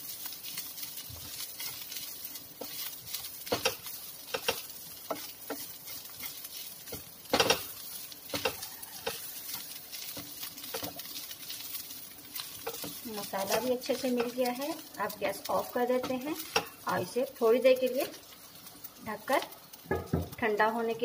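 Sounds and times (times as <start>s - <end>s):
faint frying sizzle: 0.0s - 21.0s
wooden spatula scraping a pan: 0.1s - 20.4s
spatula tapping against pan: 3.4s - 5.7s.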